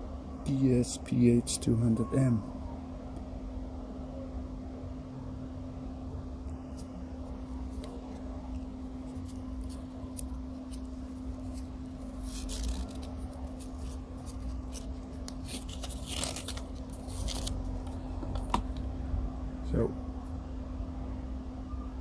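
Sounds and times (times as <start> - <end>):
fabric strap rasping: 9.1 - 17.5.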